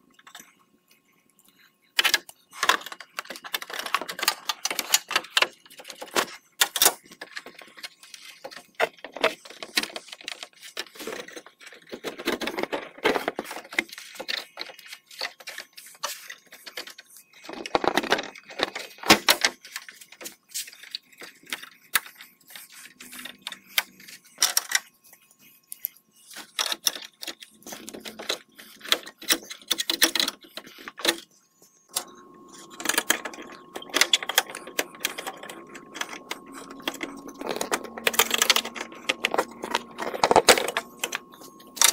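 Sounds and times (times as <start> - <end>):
metal parts rattling: 32.0 - 41.9.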